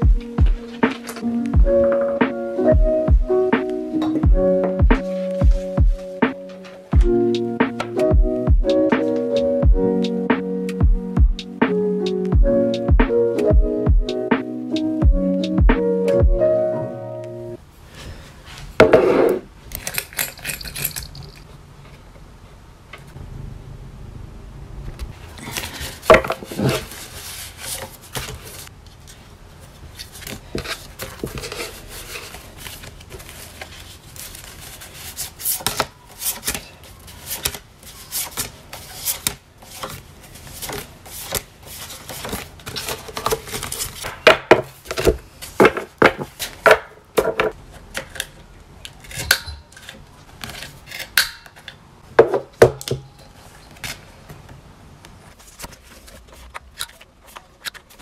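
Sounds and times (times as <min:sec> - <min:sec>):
paper cards being shuffled: 0:00.6 - 0:01.3, 0:25.4 - 0:46.7.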